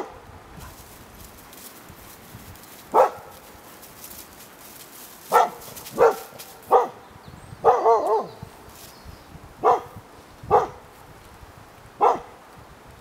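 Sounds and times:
dog barking: 0:02.9 - 0:03.3, 0:05.3 - 0:07.0, 0:07.6 - 0:08.4, 0:09.6 - 0:10.8, 0:12.0 - 0:12.3.

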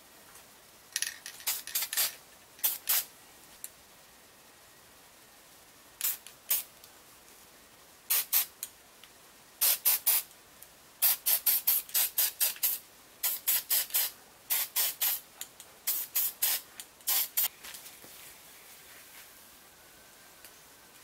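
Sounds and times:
spray paint hissing: 0:01.3 - 0:03.1, 0:06.0 - 0:06.7, 0:08.1 - 0:08.6, 0:09.6 - 0:10.3, 0:11.0 - 0:17.5.

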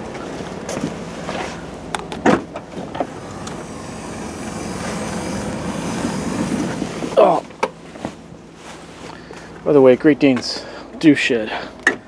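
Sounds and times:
sliding door motor running: 0:02.7 - 0:07.4.

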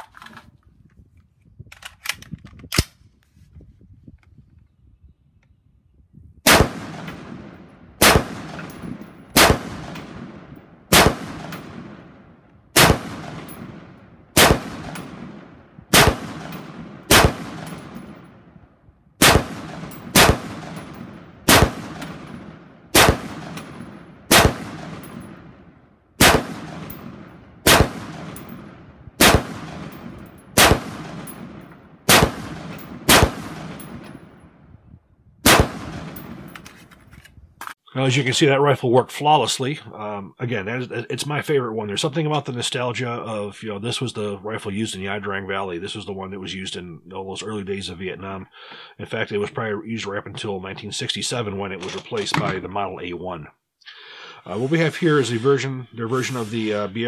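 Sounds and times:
rifle shots with echo: 0:06.4 - 0:18.6, 0:19.2 - 0:34.6, 0:35.4 - 0:36.6.

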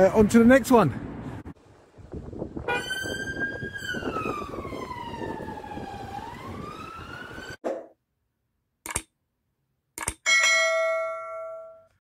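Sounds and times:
police siren wailing: 0:02.7 - 0:07.6.

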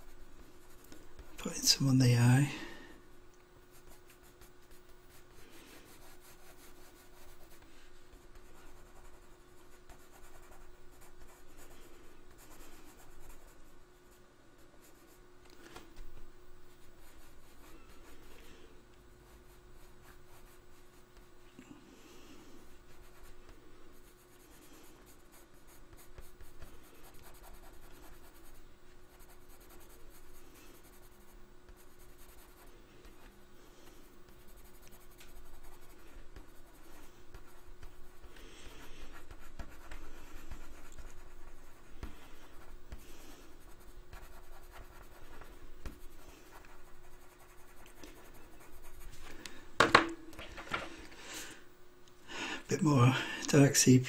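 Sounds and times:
pencil scratching on paper: 0:00.0 - 0:02.3, 0:03.7 - 0:14.1, 0:14.8 - 0:15.2, 0:16.7 - 0:18.3, 0:19.2 - 0:21.3, 0:22.6 - 0:49.1
faint steady hum: 0:00.0 - 0:54.0.

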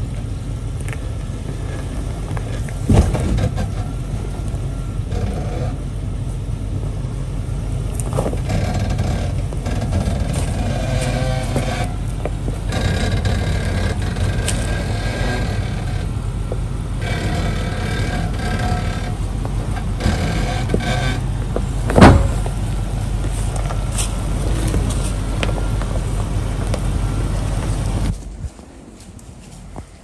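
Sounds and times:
engine running at low revs: 0:00.0 - 0:30.0
loud thump: 0:02.9 - 0:03.6, 0:21.9 - 0:22.6.

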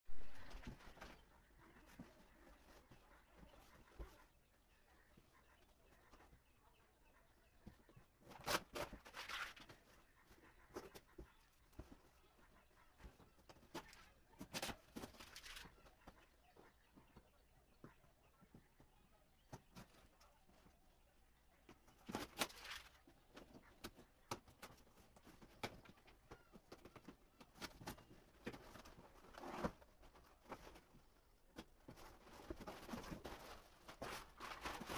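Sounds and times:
cardboard scraping and rustling: 0:27.6 - 0:31.0, 0:31.9 - 0:34.9.

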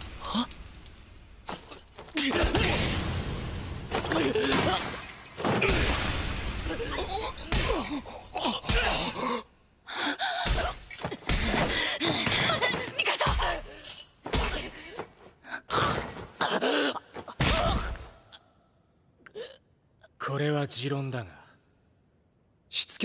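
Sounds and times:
gasps and groans: 0:06.7 - 0:18.4, 0:19.2 - 0:19.7.

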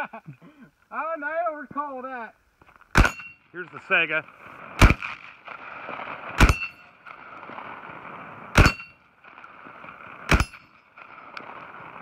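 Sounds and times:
shotgun shots: 0:02.9 - 0:03.4, 0:04.8 - 0:05.3, 0:06.4 - 0:06.8, 0:08.5 - 0:08.9, 0:10.3 - 0:10.7
steel target clang: 0:02.9 - 0:03.5, 0:06.4 - 0:06.9, 0:08.6 - 0:09.0, 0:10.3 - 0:10.8.

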